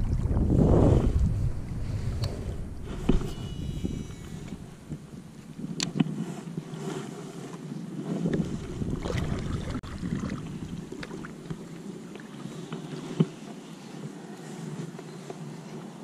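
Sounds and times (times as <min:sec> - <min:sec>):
wind buffeting microphone: 0:00.0 - 0:06.9, 0:07.6 - 0:12.1
water lapping against kayak hull: 0:00.0 - 0:14.9.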